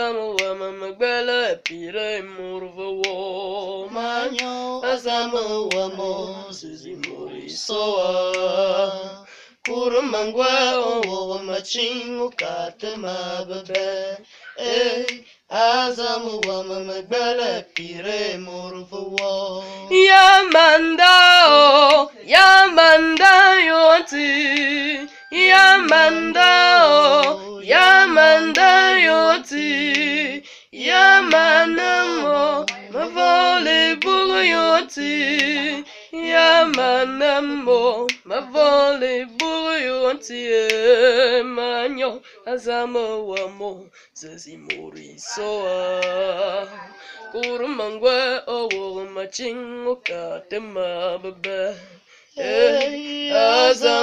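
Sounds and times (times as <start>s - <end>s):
young person singing solo: 19.9s - 39.1s, 45.0s - 48.1s, 51.5s - 54.0s.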